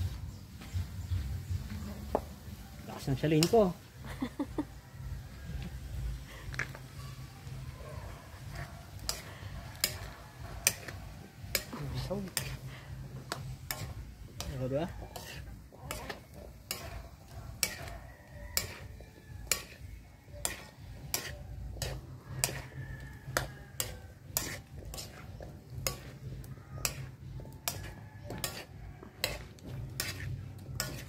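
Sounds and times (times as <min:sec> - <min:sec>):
food sizzling in a pan: 0:02.1 - 0:31.0
metal spatula scraping a wok: 0:06.9 - 0:31.0.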